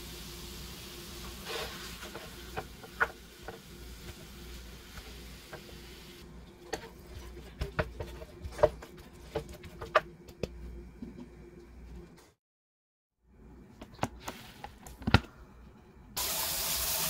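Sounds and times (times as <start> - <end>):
wooden spoon knocking and scraping pan: 2.0 - 4.3, 6.7 - 11.4
meat sizzling in a frying pan: 16.2 - 17.0.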